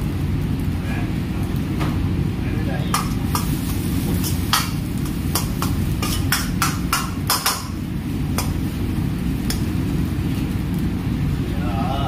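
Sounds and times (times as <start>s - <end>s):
steady low rumble: 0.0s - 12.0s
ladle clanking against wok: 2.9s - 8.8s.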